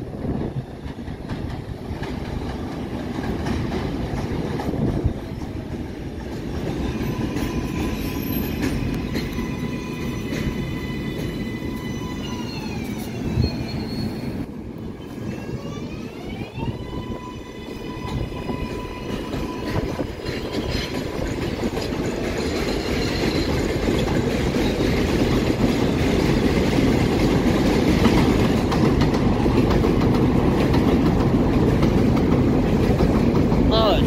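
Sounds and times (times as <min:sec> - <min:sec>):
train wheels rumbling on rails: 0:00.0 - 0:34.0.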